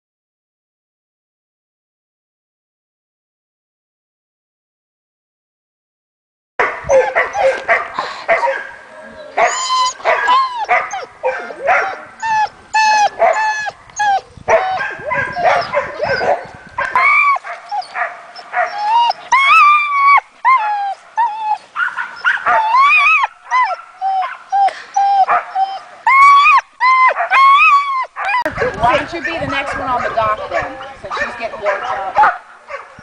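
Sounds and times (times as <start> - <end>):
dog yelping and whining: 6.9 - 7.7, 9.4 - 32.1.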